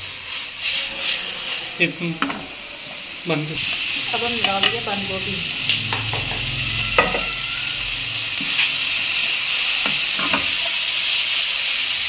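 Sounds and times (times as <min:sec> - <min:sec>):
utensil scraping a pan: 0:00.0 - 0:04.8
vegetables sizzling in oil: 0:03.6 - 0:12.0.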